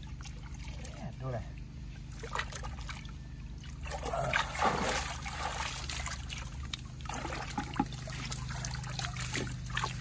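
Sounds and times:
muddy water splashing: 2.0 - 10.0.

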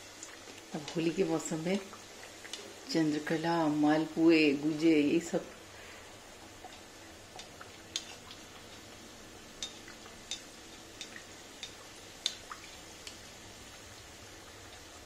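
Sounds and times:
oil sizzling in deep frying: 0.0 - 15.0.

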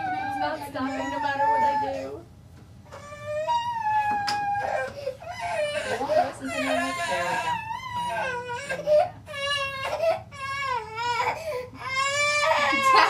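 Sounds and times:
baby crying: 0.0 - 2.2, 2.9 - 13.0.

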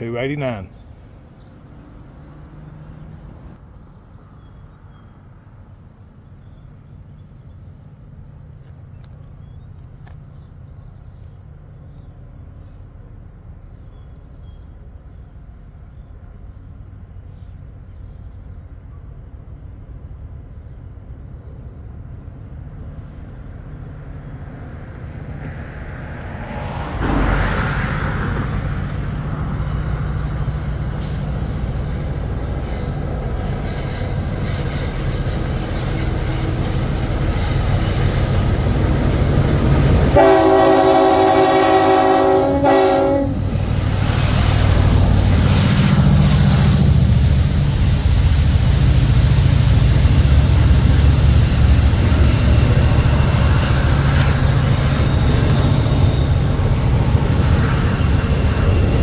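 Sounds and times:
freight train rumbling: 0.0 - 59.0
locomotive horn blast: 39.8 - 43.6.

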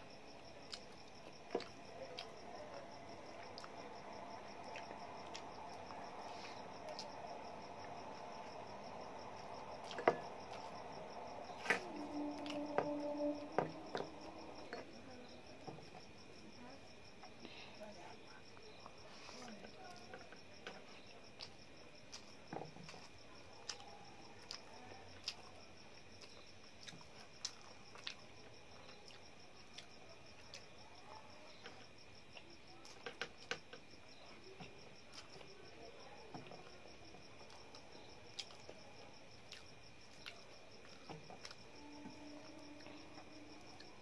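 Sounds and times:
crickets trilling: 0.0 - 44.0.

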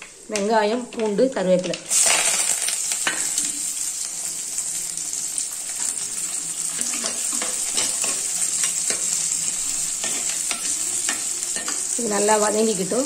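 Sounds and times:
onions sizzling in hot oil: 0.0 - 13.0
spoon stirring a pot: 6.7 - 12.0.

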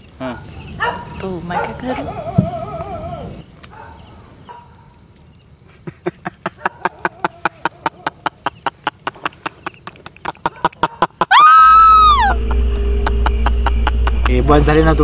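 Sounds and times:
man laughing maniacally: 5.7 - 15.0
woman screaming: 11.2 - 12.5
loud low drone: 11.8 - 15.0.

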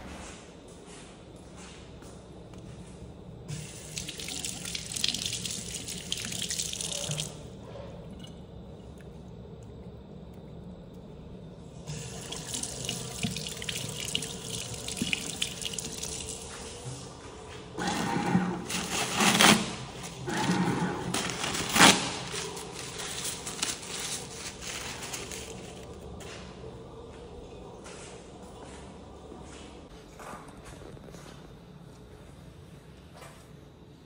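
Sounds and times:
tap running water into sink: 11.9 - 16.6.

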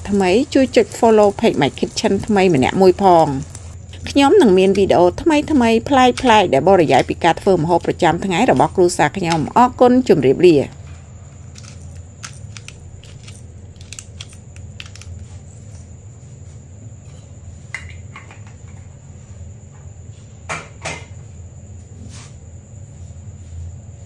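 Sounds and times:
steady low hum: 0.0 - 24.0
pepper grinder crunching clicks: 11.6 - 15.2.

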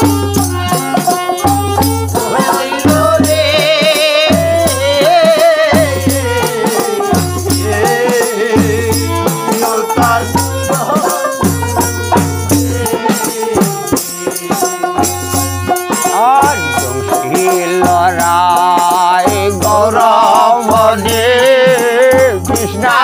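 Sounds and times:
dholak drum beat: 0.0 - 23.0
harmonium: 0.0 - 23.0
rattling percussion: 0.0 - 23.0
solo voice singing: 2.2 - 11.5, 16.2 - 23.0.

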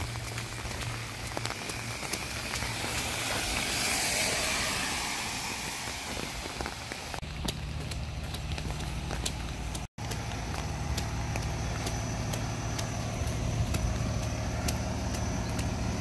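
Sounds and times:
heavy rain on wet street: 0.0 - 15.9
low engine hum: 0.0 - 16.0
raindrops ticking: 0.0 - 16.0.

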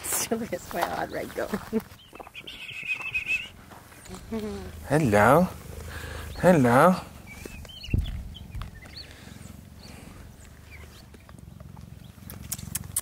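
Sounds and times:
high chirps: 2.0 - 5.0
cheetah purring: 3.2 - 13.0.

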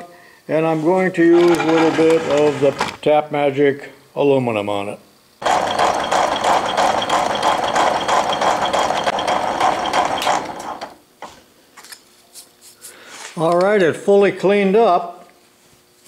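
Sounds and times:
faint high machine whine: 0.0 - 16.0
metal shaper clattering: 1.3 - 3.0, 5.4 - 10.9.

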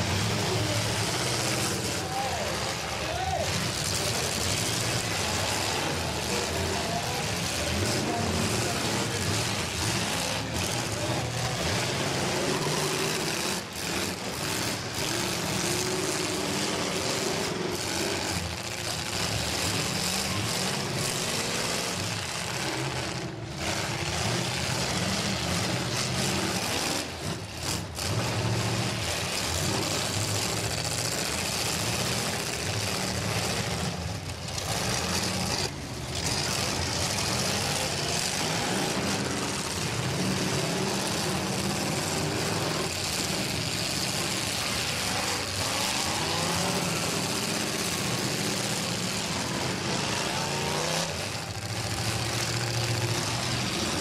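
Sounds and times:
car engines revving: 0.0 - 54.0.

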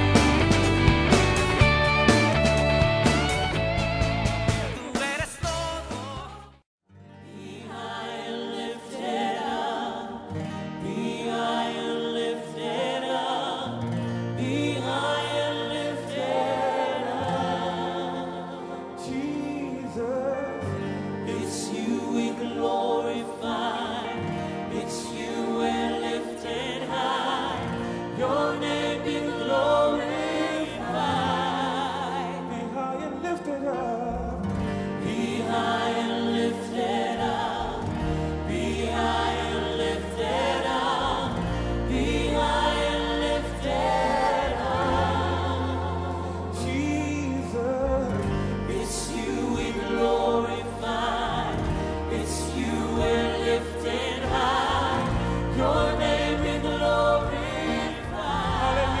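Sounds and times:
voices singing worship song: 0.0 - 2.4, 4.3 - 59.0
instrumental backing with bass: 0.0 - 6.6, 24.3 - 59.0.

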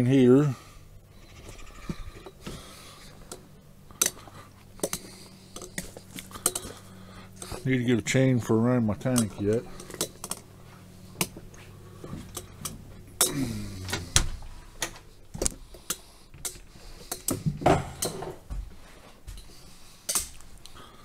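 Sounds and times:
door creaking open: 13.4 - 14.4
footsteps: 17.4 - 19.8.

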